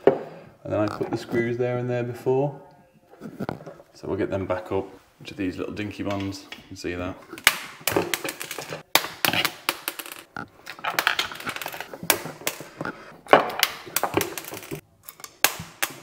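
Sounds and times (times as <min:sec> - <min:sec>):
clicks knocks and scraping: 0:06.0 - 0:16.0.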